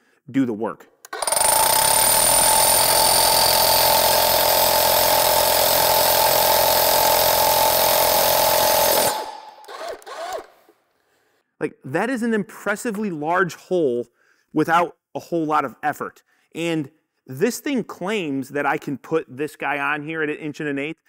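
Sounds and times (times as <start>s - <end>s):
rotary hammer drilling concrete: 1.1s - 10.6s.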